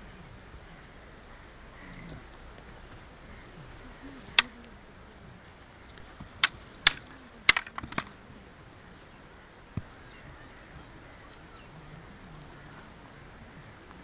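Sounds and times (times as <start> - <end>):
wooden sticks clacking: 4.2 - 4.6, 5.9 - 8.2.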